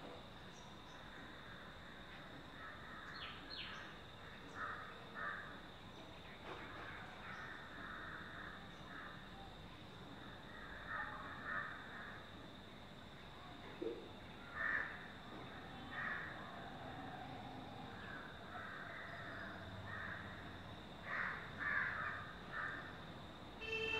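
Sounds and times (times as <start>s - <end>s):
harsh cawing bird calls: 14.5s - 15.0s, 18.1s - 20.4s, 21.0s - 22.9s.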